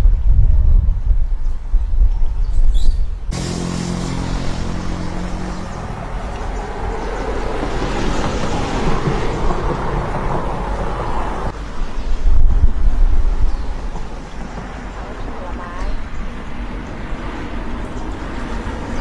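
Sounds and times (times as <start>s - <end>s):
vehicle engine hum: 3.3s - 11.6s
road noise rushing: 3.3s - 19.0s.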